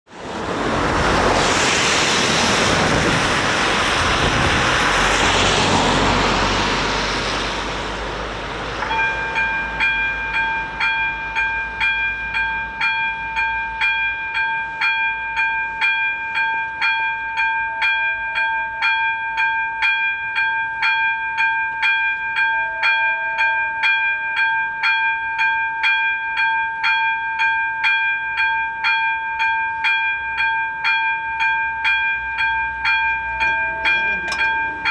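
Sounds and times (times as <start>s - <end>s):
tyres hissing on wet road: 0.1s - 13.3s
level crossing electronic bell: 8.9s - 34.9s.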